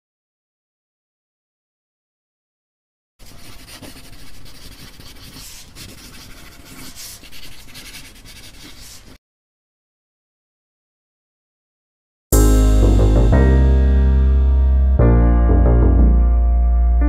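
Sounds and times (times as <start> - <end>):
pen scratching on paper: 3.2 - 9.2.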